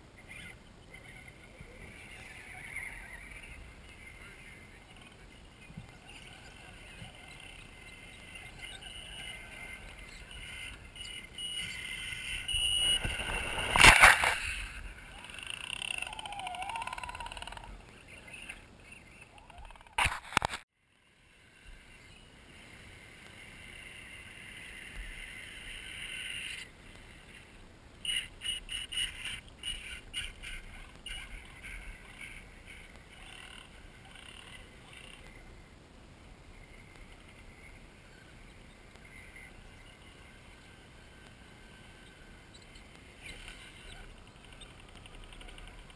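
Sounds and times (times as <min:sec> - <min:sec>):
small electric motors whining: 0:05.9 - 0:18.5
short sharp clatters: 0:12.8 - 0:14.8.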